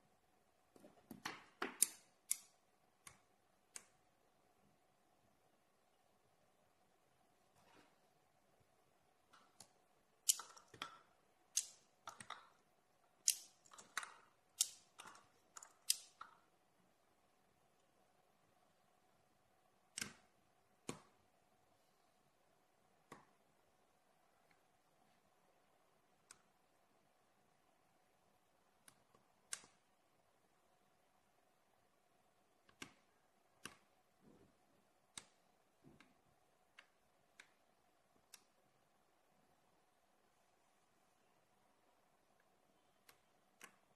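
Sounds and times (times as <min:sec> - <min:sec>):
magnetic balls clicking together: 0:09.4 - 0:16.5.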